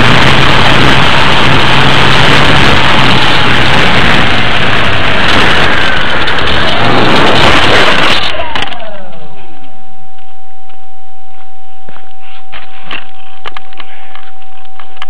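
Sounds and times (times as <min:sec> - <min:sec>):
wind on microphone: 0:00.0 - 0:08.2
model airplane motor and propeller: 0:00.0 - 0:09.7
motor winding down whine: 0:00.0 - 0:10.4
steady tone: 0:00.0 - 0:15.0.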